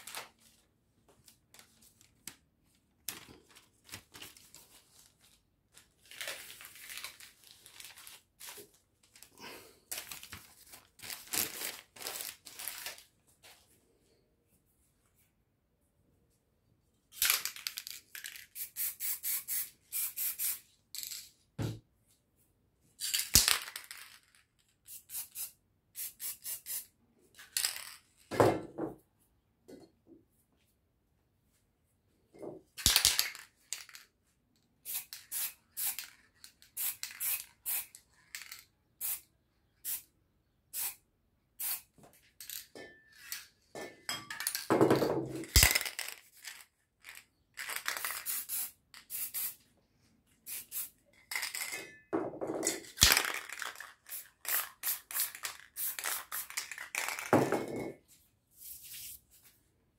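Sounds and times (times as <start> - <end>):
spray paint can hissing: 18.6 - 20.6, 24.9 - 26.9, 34.9 - 36.1, 36.8 - 37.9, 39.0 - 39.2, 40.8 - 41.0, 41.6 - 41.8, 48.0 - 49.6, 50.4 - 50.9, 53.5 - 56.7.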